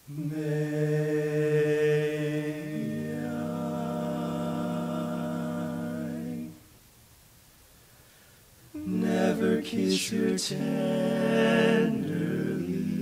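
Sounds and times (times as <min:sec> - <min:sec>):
male vocal quartet harmony: 0:00.1 - 0:06.7, 0:08.7 - 0:13.0.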